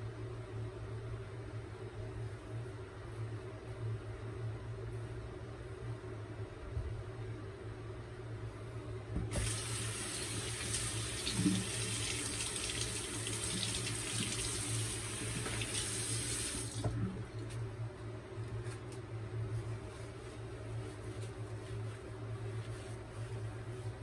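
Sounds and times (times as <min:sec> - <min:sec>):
tap running into sink: 0:15.2 - 0:16.0.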